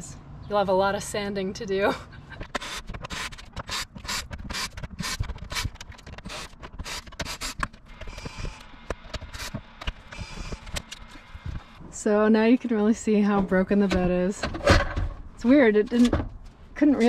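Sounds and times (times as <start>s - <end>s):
cordless drill driving screws: 2.5s - 11.4s.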